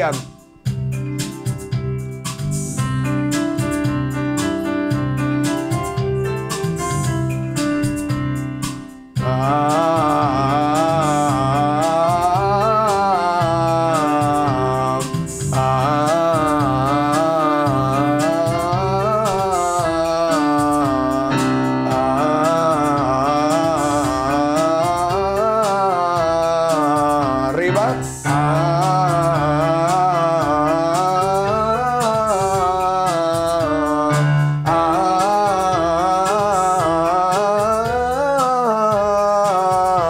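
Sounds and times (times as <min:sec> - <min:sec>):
electric keyboard chords: 0:00.0 - 0:40.0
man singing vocal scales: 0:09.2 - 0:40.0.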